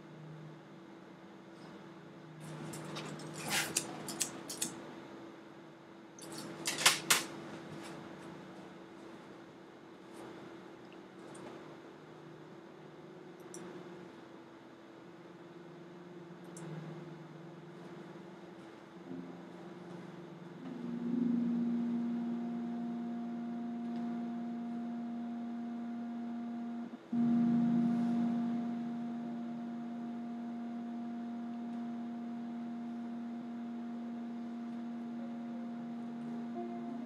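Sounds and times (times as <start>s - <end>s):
low drone tone: 19.0s - 37.0s.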